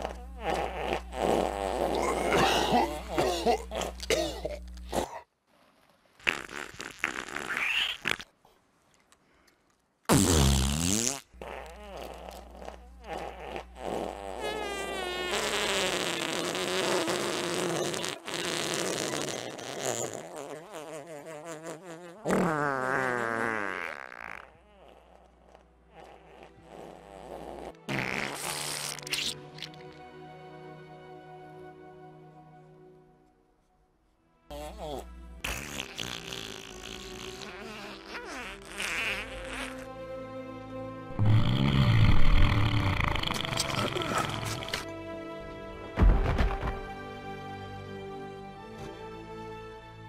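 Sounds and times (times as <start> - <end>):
comedic fart sound effects: 0.0 - 5.2, 6.2 - 8.4, 10.1 - 30.0, 34.5 - 39.9, 41.2 - 44.9.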